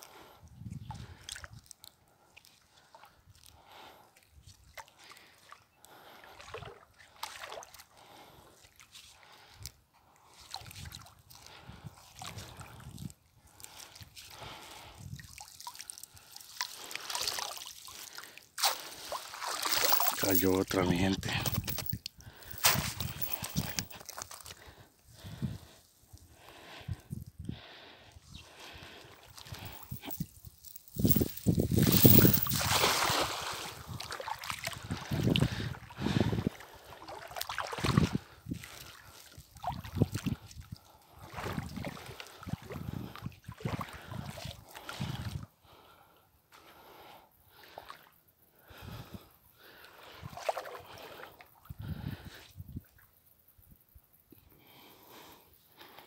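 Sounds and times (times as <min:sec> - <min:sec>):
water splashing and sloshing: 0:00.9 - 0:12.9, 0:13.5 - 0:20.4, 0:28.5 - 0:45.2, 0:49.6 - 0:51.5
water dripping and trickling: 0:12.2 - 0:20.4
wind buffeting microphone: 0:31.0 - 0:36.5.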